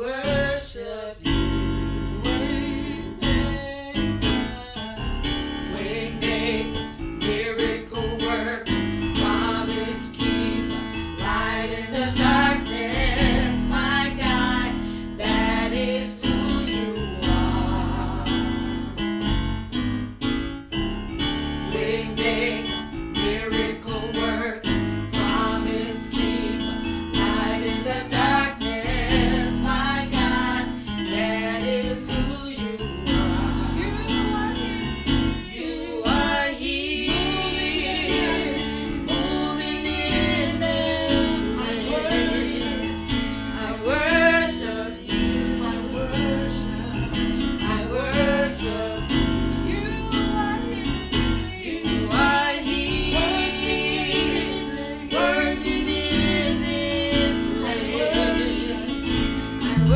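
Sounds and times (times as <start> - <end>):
women singing gospel song: 0.0 - 19.1, 21.5 - 59.9
instrumental accompaniment: 1.3 - 45.8, 59.7 - 59.9.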